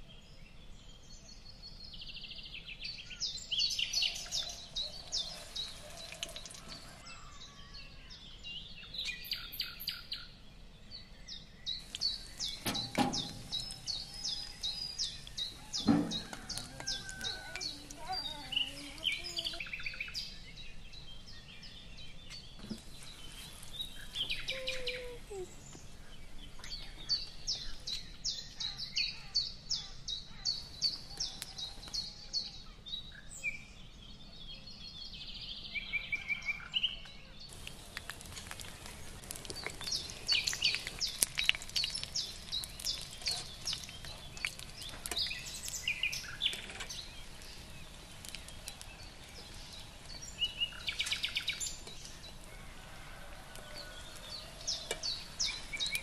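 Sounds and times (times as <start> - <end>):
small birds chirping: 0.0 - 56.0
deep-frying oil crackle: 3.5 - 7.5, 11.7 - 19.6, 37.5 - 56.0.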